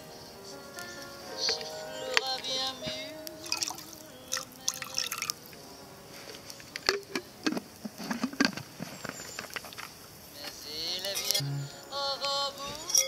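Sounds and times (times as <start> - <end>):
water splashing into frying pan: 3.4 - 3.9.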